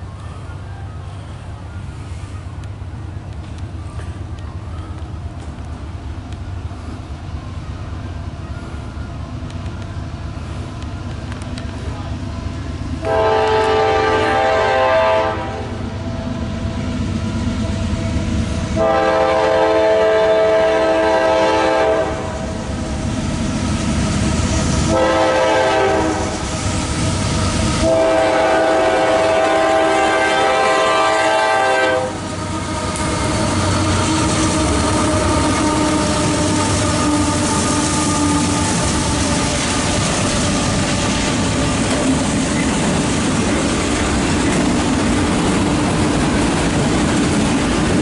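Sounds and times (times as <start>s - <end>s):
diesel locomotive engine rumble: 0.0s - 48.0s
train air horn blasts: 13.0s - 16.0s, 18.7s - 22.6s, 24.8s - 26.5s, 27.7s - 39.5s.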